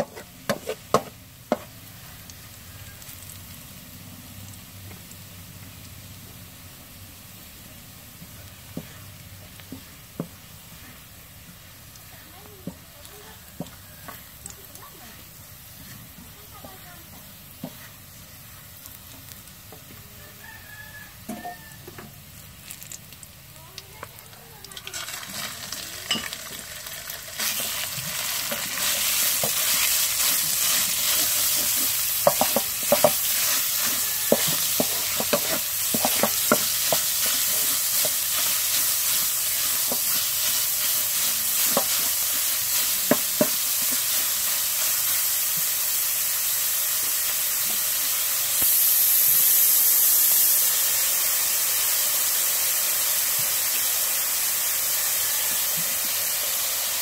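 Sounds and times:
wooden spatula scraping a wok: 0.0s - 1.7s, 15.7s - 18.1s, 24.8s - 45.8s
meat sizzling in a wok: 0.0s - 57.0s.

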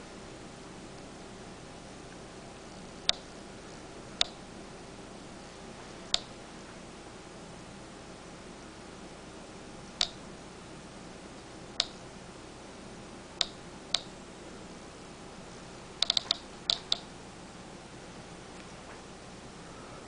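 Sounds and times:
geiger counter clicking: 2.1s - 3.4s, 4.2s - 4.4s, 6.1s - 6.4s, 10.0s - 10.2s, 11.7s - 12.0s, 13.4s - 14.2s, 16.0s - 17.1s.

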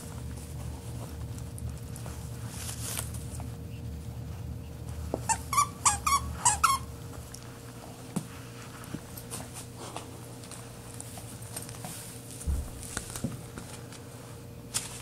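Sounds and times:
dog toy squeaking: 5.3s - 6.9s.

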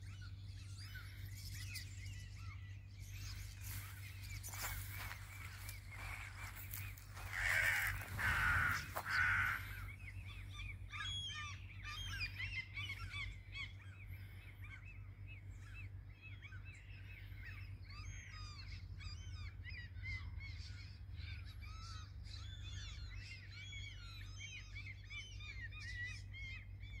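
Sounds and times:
harsh bird calls: 0.0s - 27.0s
small birds chirping: 0.0s - 27.0s
steady low hum: 0.0s - 27.0s.

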